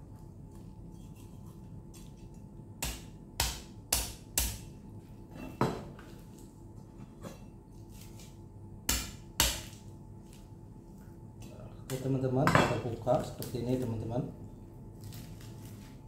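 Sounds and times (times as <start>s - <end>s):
cleaver chopping raw chicken: 2.8s - 4.6s, 8.9s - 9.8s.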